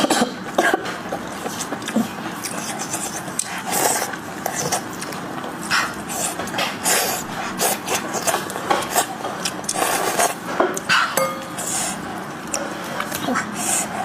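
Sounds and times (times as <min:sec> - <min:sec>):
wet chewing and smacking: 0:00.9 - 0:11.2.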